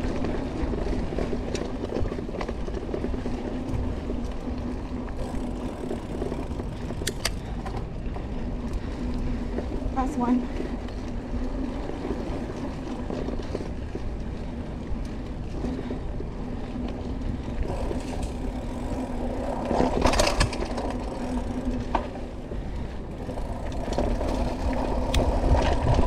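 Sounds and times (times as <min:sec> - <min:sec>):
bike clattering over rough ground: 0:00.0 - 0:16.0, 0:16.7 - 0:26.0
bike tyres rolling on dirt: 0:00.0 - 0:26.0.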